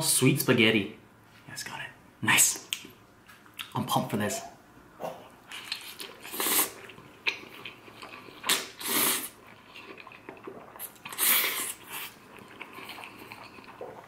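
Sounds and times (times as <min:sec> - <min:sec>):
quiet chewing: 0:05.0 - 0:14.0
person slurping noodles: 0:06.0 - 0:07.0, 0:08.4 - 0:14.0.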